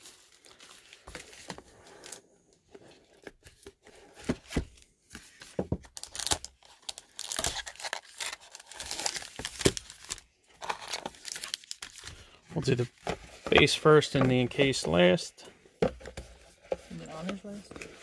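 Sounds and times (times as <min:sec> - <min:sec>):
cardboard tearing and scraping: 0:06.0 - 0:12.0
foil pack crinkling: 0:06.0 - 0:12.4.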